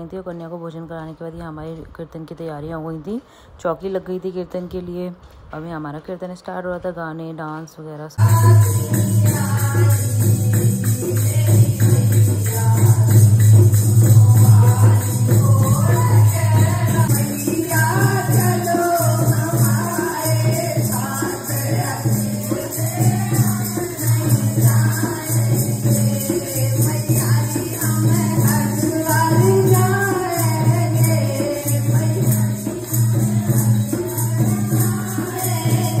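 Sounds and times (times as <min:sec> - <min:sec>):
woman singing through loudspeaker: 0:00.0 - 0:36.0
hand drum rhythm: 0:08.2 - 0:36.0.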